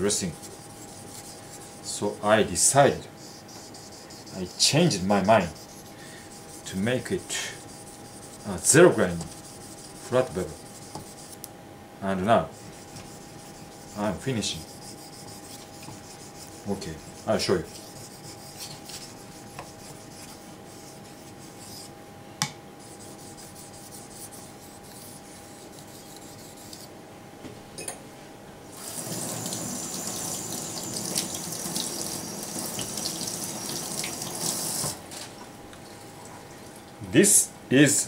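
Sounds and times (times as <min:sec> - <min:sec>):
knife on wet whetstone: 0:03.2 - 0:11.4, 0:12.6 - 0:21.9.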